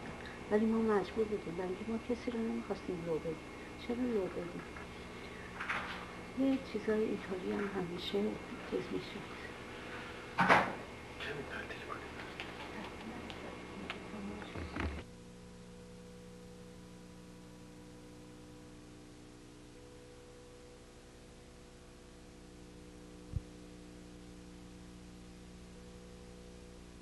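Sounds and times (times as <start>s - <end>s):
electrical hum: 0.0s - 27.0s
faint hiss: 8.0s - 14.6s.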